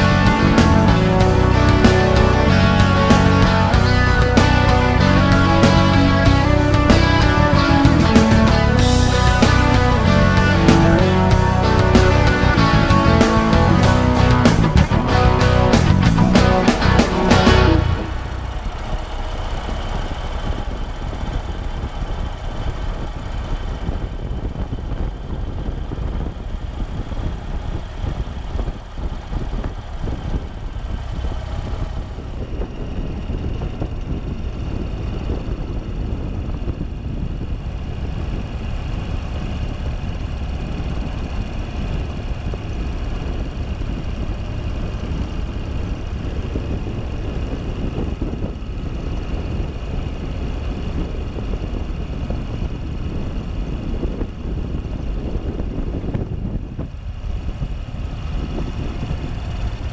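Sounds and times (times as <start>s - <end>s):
motorcycle engine running: 0.0s - 59.9s
wind rumble on microphone: 17.8s - 59.9s.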